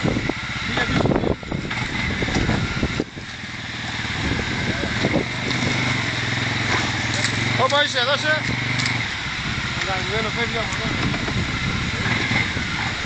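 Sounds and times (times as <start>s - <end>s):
quad engine running: 0.0s - 13.0s
water splashing around wheels: 0.0s - 13.0s.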